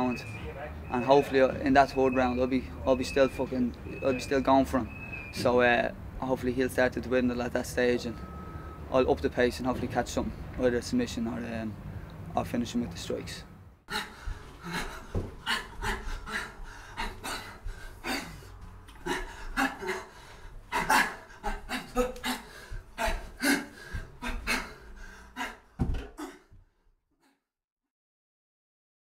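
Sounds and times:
man panting exhalations: 13.9 - 26.6.

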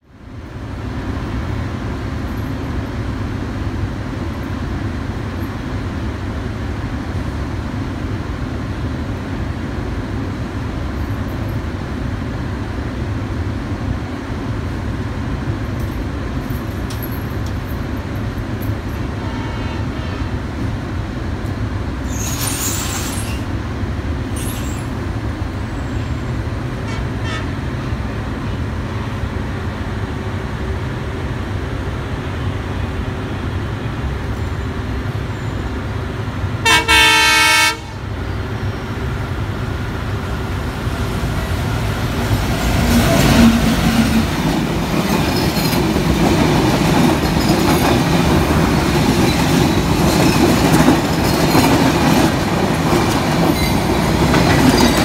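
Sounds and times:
train coaches rumbling past: 0.0 - 55.0
short high hisses: 22.1 - 23.5.

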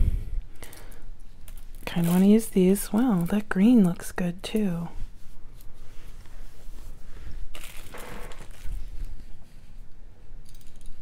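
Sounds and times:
bead packets rustling: 7.5 - 9.2.

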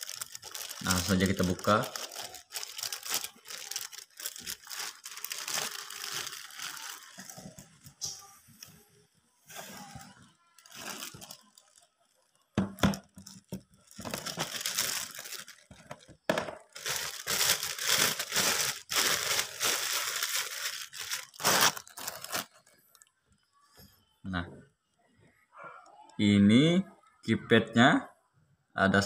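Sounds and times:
plastic packaging crinkling: 0.0 - 8.7, 9.5 - 23.1.

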